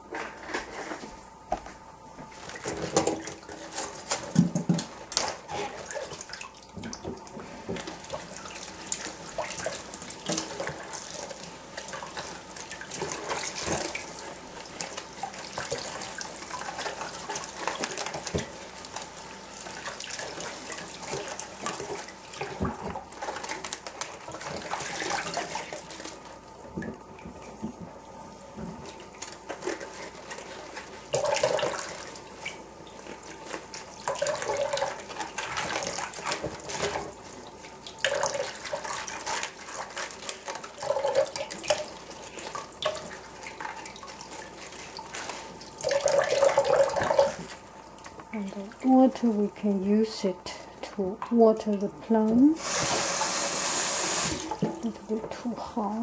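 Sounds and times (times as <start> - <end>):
tap running water: 0.1 - 56.0
leaves handled in water: 28.8 - 50.4.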